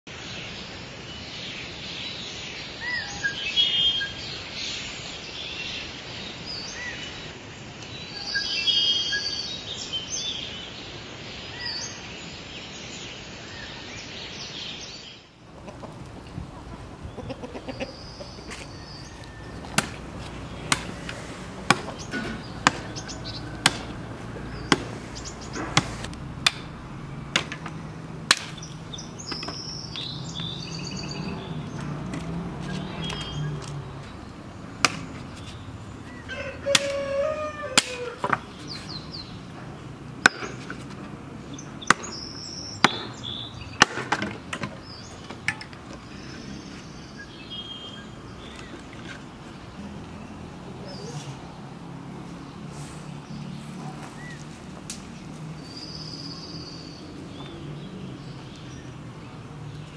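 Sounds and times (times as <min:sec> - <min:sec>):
birds chirping and singing: 0:00.1 - 0:59.9
sickle chopping dry sticks: 0:18.5 - 0:30.1, 0:34.8 - 0:35.6, 0:36.6 - 0:38.9, 0:40.2 - 0:41.2, 0:41.8 - 0:42.2, 0:42.8 - 0:43.2, 0:43.8 - 0:45.9.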